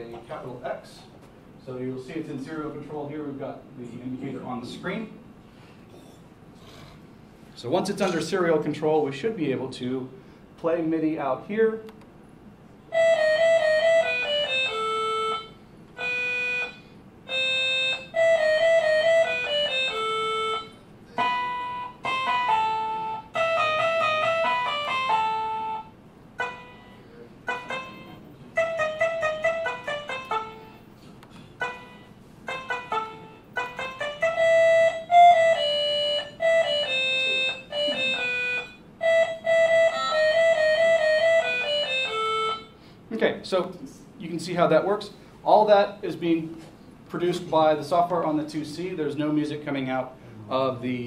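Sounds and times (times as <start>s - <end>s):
computer synthesized music: 31.6s - 42.6s.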